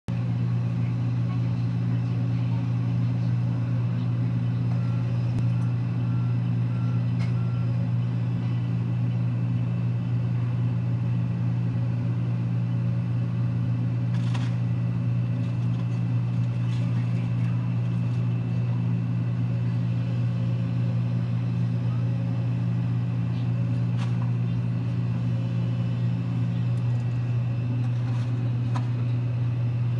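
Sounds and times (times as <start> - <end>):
excavator diesel engine drone: 0.1 - 29.9.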